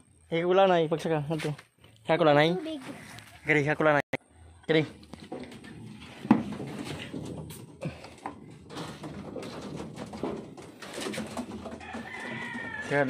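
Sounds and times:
sharp knocks and clatters: 5.1 - 13.0.

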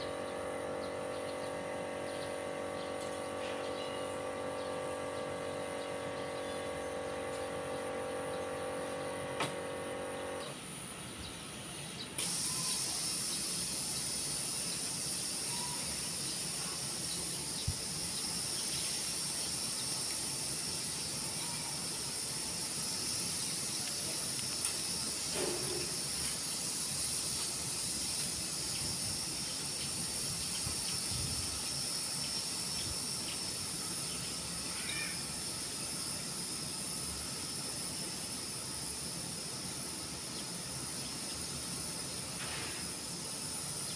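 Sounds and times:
steady high hiss: 0.0 - 2.4, 3.2 - 43.9
generator engine humming: 0.0 - 34.7.

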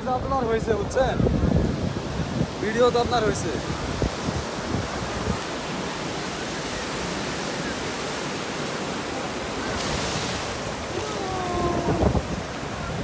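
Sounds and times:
surf washing up beach: 0.0 - 13.0.

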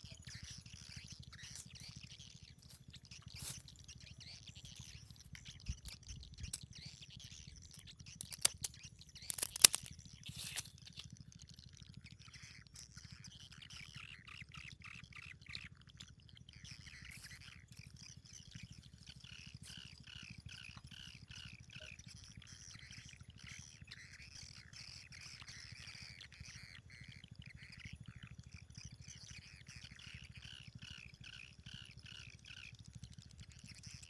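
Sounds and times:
birds chirping: 0.0 - 11.0
scissors cutting shellfish: 5.6 - 6.8, 7.6 - 10.8.

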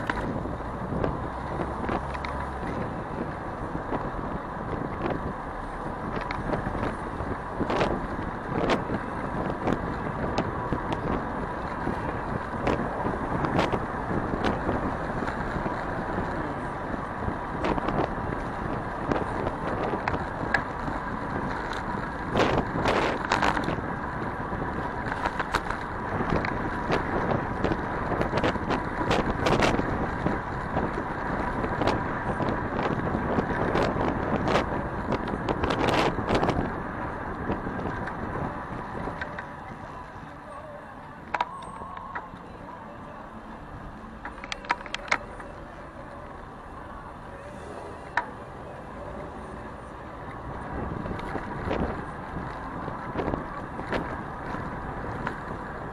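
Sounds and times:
wind buffeting microphone: 0.0 - 40.4, 43.6 - 55.9
road noise: 0.0 - 55.9.

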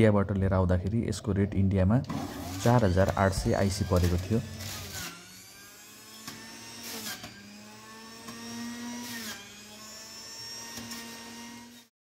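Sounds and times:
juicer grinding carrot: 2.1 - 11.8
juicer motor running: 2.1 - 11.8.

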